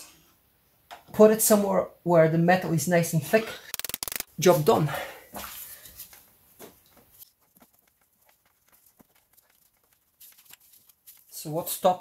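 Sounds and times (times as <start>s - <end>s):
faint rustling: 5.9s - 11.5s.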